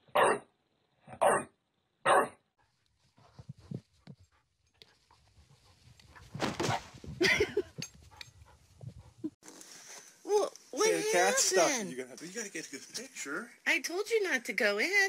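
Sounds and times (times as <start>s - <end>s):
dog barking: 0.1s - 0.5s, 1.2s - 2.4s.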